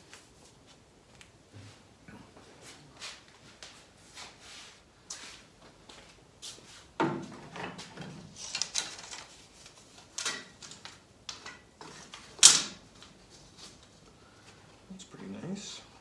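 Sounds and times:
soft rustling: 0:00.0 - 0:07.0.

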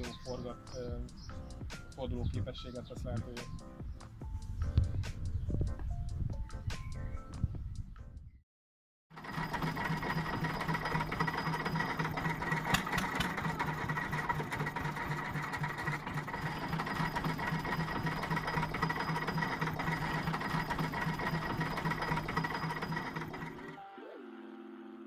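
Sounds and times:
diesel locomotive engine running: 0:09.1 - 0:23.8.

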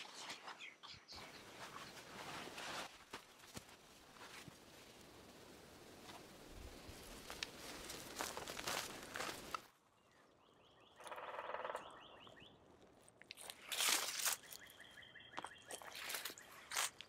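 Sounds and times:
footsteps crunching on dry leaves: 0:07.0 - 0:09.6, 0:13.4 - 0:14.7, 0:15.4 - 0:17.0.

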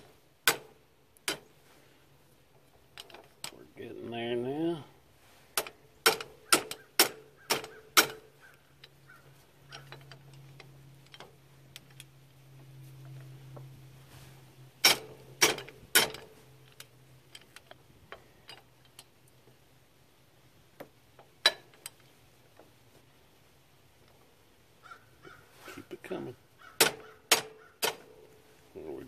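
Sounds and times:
hammer striking steel bolt: 0:00.4 - 0:01.4, 0:05.6 - 0:08.2, 0:14.8 - 0:16.3, 0:26.8 - 0:28.1.

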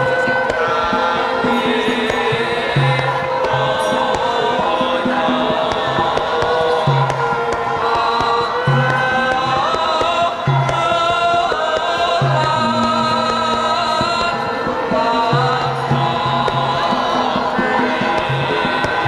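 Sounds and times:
chorus of voices singing: 0:00.0 - 0:19.0
gamelan music: 0:00.0 - 0:19.0.

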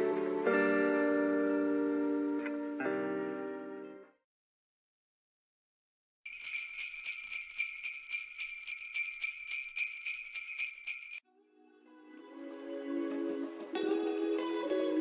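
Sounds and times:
sleigh bells shaking: 0:06.2 - 0:11.2.

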